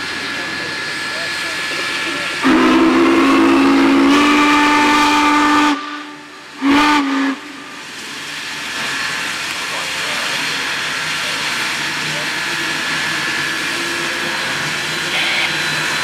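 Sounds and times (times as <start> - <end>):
steady steam hiss: 0.0 - 16.0
steam locomotive whistle: 2.4 - 7.8.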